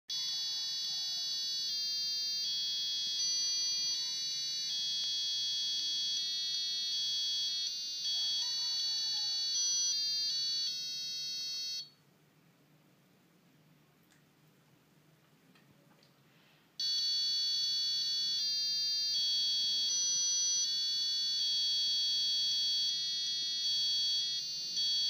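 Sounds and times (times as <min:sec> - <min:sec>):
piezo buzzer playing melody: 0:00.1 - 0:11.9, 0:16.8 - 0:25.0.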